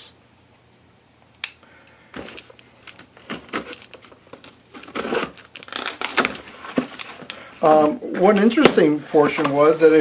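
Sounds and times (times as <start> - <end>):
knife cutting cardboard box tape: 4.8 - 7.0.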